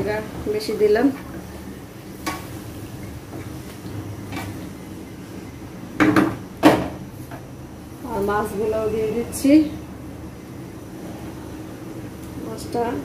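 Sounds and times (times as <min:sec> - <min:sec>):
low steady hum: 0:00.0 - 0:13.0
loud knocks: 0:06.0 - 0:07.0.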